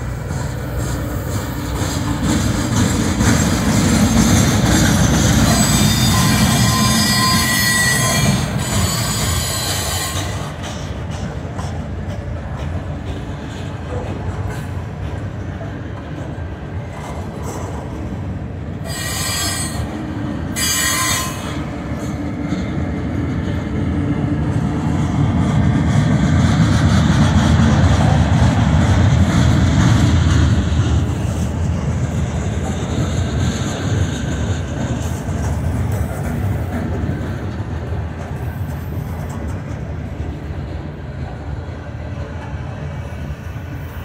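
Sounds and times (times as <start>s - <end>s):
train wheels rumbling on rails: 0.0s - 44.0s
high wheel screeches: 5.4s - 10.5s, 18.8s - 21.7s.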